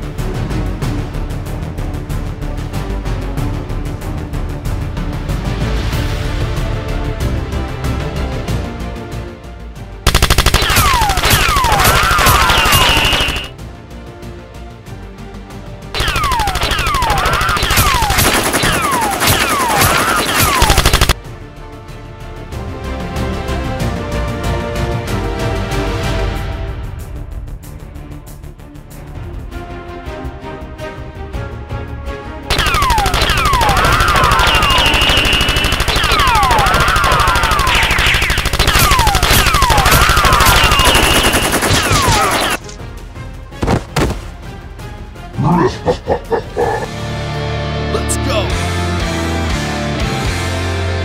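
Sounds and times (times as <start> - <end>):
music: 0.0 - 51.0
rapid automatic gunfire: 10.1 - 13.5, 16.0 - 21.2, 32.5 - 42.7
falling ricochet whistles: 33.6 - 42.6
falling whistles: 39.0 - 41.6.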